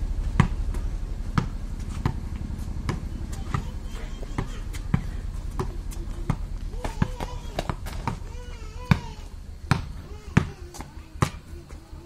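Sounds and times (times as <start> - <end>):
basketball bouncing on dirt: 0.2 - 11.9.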